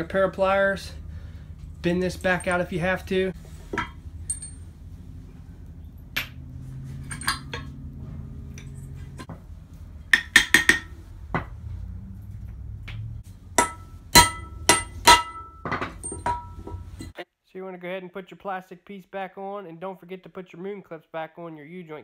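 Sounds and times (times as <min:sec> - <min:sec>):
metal knocking on metal: 0:10.0 - 0:11.6.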